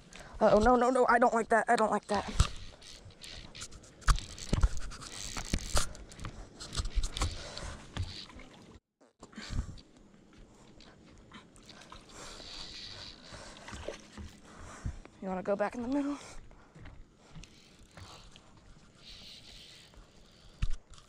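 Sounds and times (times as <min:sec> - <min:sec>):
fishing rod and line handled: 0:02.1 - 0:08.8, 0:09.7 - 0:14.4, 0:17.3 - 0:21.0.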